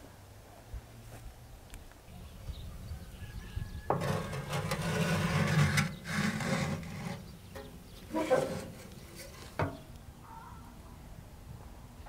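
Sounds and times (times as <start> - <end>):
metal pan knocking and scraping: 3.9 - 9.9.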